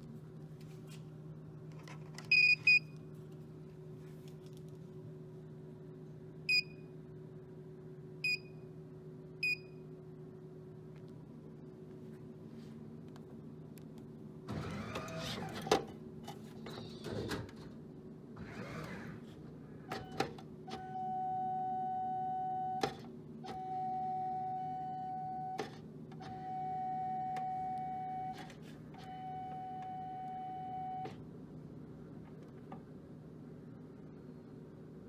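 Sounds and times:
machine low hum: 0:00.0 - 0:35.0
vending machine long beeps: 0:02.2 - 0:03.0, 0:06.4 - 0:06.9, 0:08.2 - 0:08.7, 0:09.4 - 0:09.9, 0:19.9 - 0:31.2.

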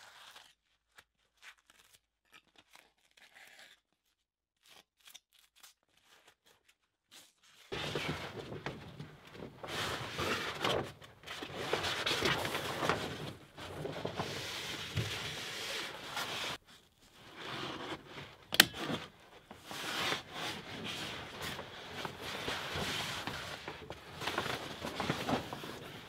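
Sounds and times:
plastic sheet rustling: 0:07.4 - 0:26.0.

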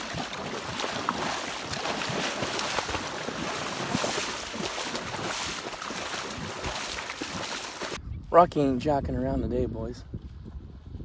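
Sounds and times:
dog splashing through water: 0:00.0 - 0:08.0.

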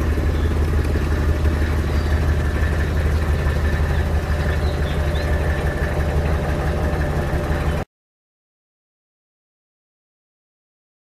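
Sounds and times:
diesel engine idling: 0:00.0 - 0:07.9.

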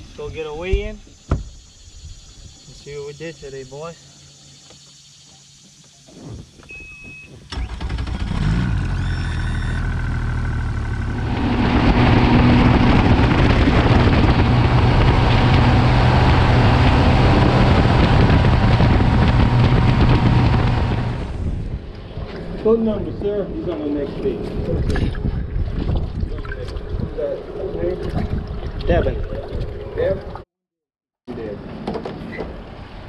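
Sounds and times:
short beep: 0:06.7 - 0:07.4
outboard motor: 0:07.4 - 0:30.4
rush of wind and water: 0:11.2 - 0:23.1, 0:24.2 - 0:30.4.

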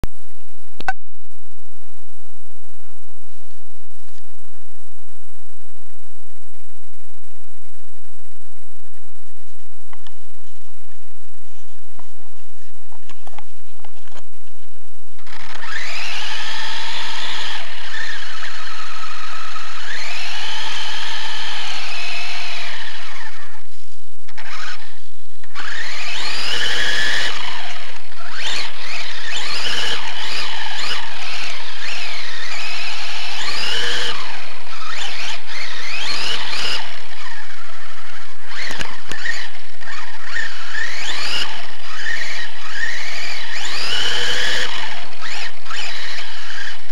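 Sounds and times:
toy car motor whine: 0:15.2 - 0:46.9.

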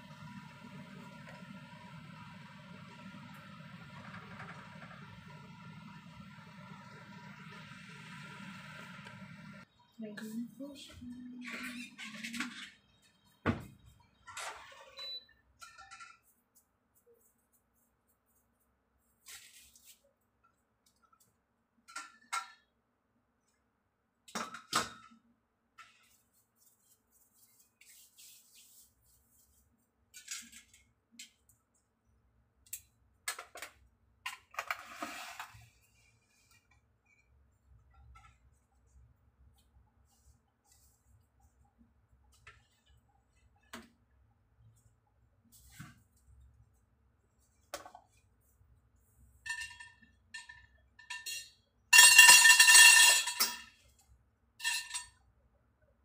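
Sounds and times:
metal kitchenware clinking: 0:49.4 - 0:53.9, 0:54.6 - 0:55.2.

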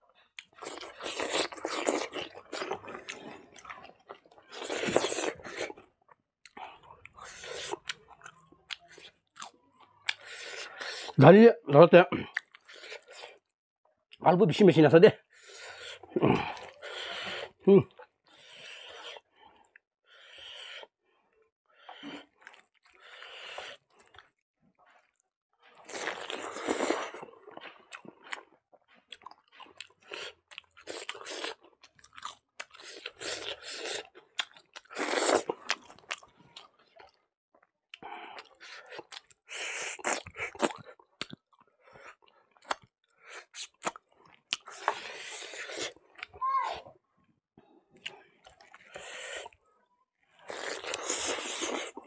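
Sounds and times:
chewing with mouth noise: 0:00.2 - 0:11.2, 0:12.2 - 0:13.5, 0:21.8 - 0:46.4, 0:47.9 - 0:49.6, 0:50.2 - 0:52.0.

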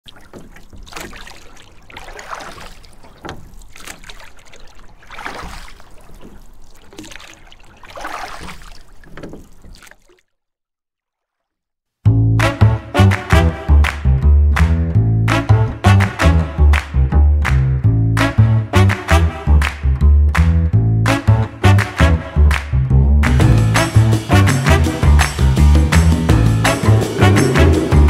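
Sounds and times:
water sloshing and splashing: 0:00.0 - 0:11.7
loud music with a beat: 0:12.2 - 0:14.0, 0:15.3 - 0:16.8, 0:23.2 - 0:28.0.

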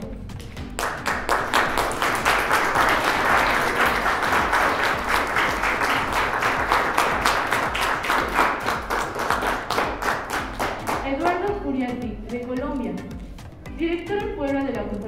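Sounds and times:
audience applauding: 0:00.7 - 0:11.1.

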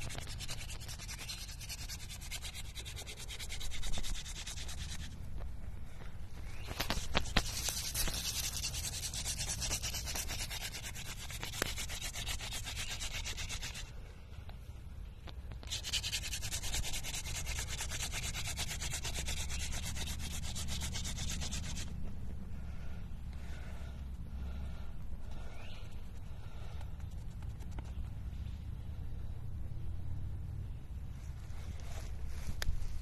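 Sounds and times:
spindle rubbing on wooden board: 0:00.0 - 0:05.2, 0:06.9 - 0:13.9, 0:15.7 - 0:21.9.

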